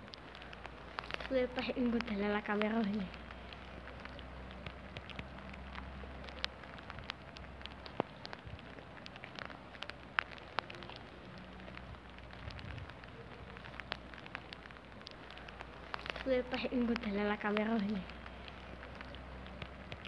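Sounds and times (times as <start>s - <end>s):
drops ticking on hard surfaces: 0.0s - 20.0s
rain falling: 0.0s - 20.0s.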